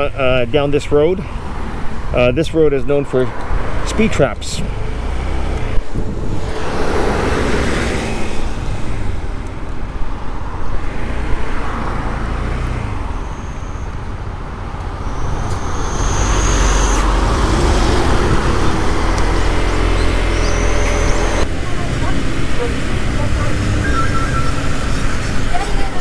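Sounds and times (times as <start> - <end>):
road traffic: 0.0 - 26.0
wind on microphone: 5.7 - 9.4.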